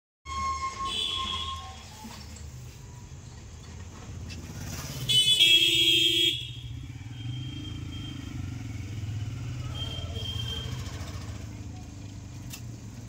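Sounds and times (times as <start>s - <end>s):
vehicle horn honking: 0.3s - 1.8s, 5.1s - 8.6s, 9.7s - 10.9s
road traffic hum: 0.4s - 13.0s.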